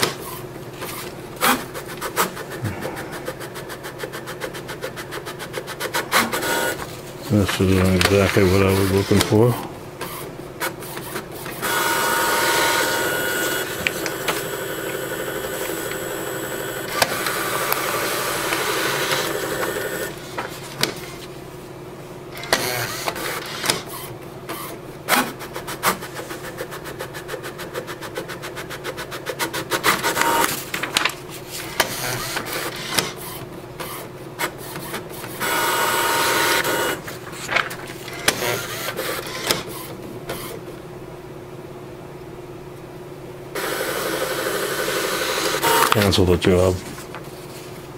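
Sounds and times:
printer motor whirring: 0.0 - 21.2, 22.4 - 24.8, 28.8 - 40.7, 43.6 - 46.3
printer rapid clicking: 3.2 - 21.1, 25.4 - 40.5, 43.6 - 46.3.

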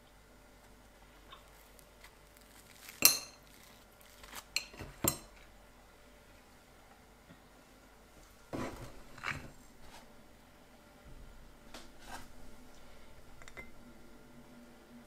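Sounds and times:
clinks on ceramic plate: 4.6 - 5.3.

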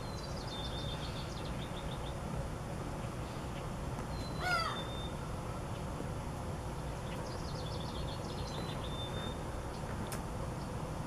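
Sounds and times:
low background hum: 0.0 - 11.0
loud bird call: 4.1 - 5.3.

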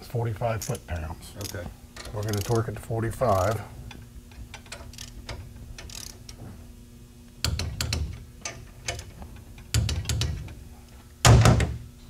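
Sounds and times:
torque wrench ratcheting: 1.4 - 3.6, 4.5 - 6.4.

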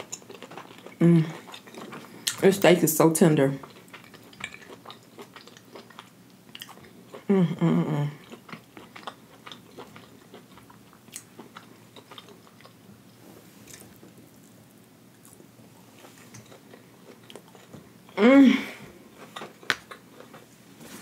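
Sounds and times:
chewing: 0.0 - 2.4, 3.6 - 7.3, 8.2 - 12.8, 13.6 - 17.9, 19.1 - 20.5.

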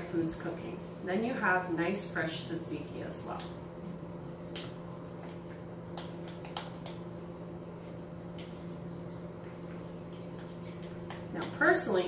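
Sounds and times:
steady low hum: 0.0 - 12.0
spoon stirring thick dip: 3.3 - 11.7.

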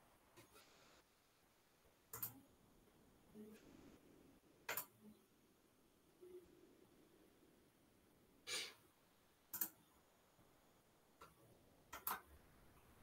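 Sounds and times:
soft puff of noise: 8.5 - 8.8.

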